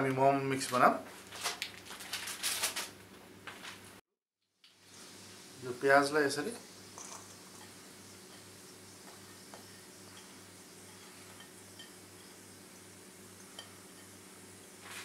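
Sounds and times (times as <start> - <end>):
low steady hum: 4.8 - 15.0
bowl clinking on metal bowl: 9.1 - 12.4, 13.5 - 14.2.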